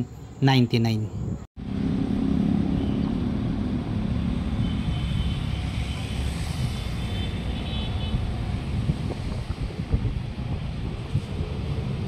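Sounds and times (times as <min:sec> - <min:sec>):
engine rumble passing by: 0:01.6 - 0:07.0.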